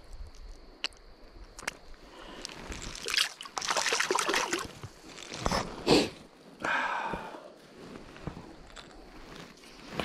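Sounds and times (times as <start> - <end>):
splashing in shallow water: 2.7 - 4.8.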